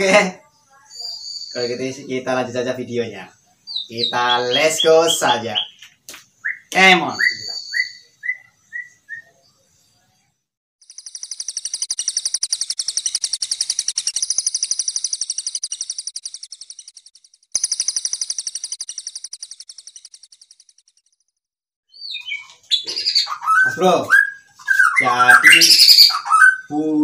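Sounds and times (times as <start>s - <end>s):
songbird trilling: 6.4s - 9.3s, 10.9s - 17.0s, 21.9s - 26.8s.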